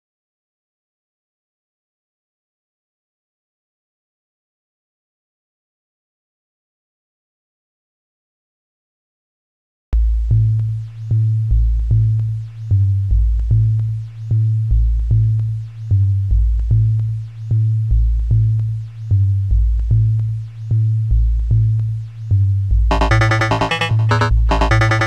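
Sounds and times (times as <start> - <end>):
deep synth bass: 22.9 - 25.0
high synth blip: 22.9 - 25.0
kick drum beat: 22.9 - 25.0.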